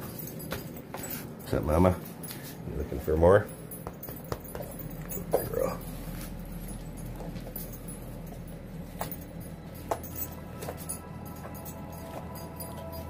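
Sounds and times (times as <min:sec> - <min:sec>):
steady low hum: 0:00.0 - 0:13.0
puppy whining: 0:04.9 - 0:08.2.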